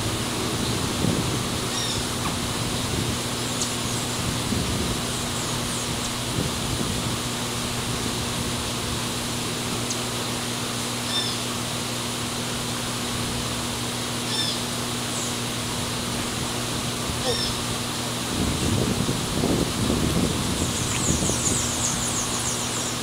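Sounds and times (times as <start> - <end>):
low even hum: 0.0 - 23.0
outdoor background hiss: 0.0 - 23.0
bird chirping: 20.6 - 23.0.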